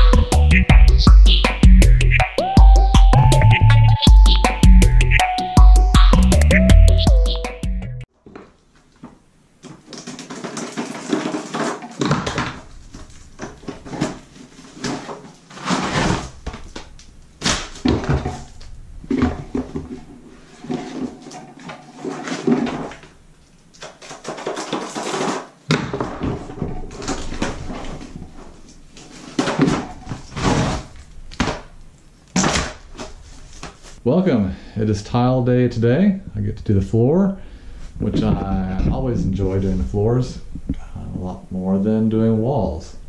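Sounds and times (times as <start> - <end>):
cardboard rustling: 8.1 - 34.0.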